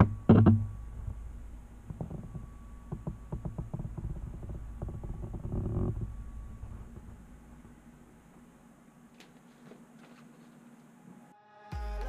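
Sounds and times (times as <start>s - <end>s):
dull handling thumps: 0.0s - 8.2s.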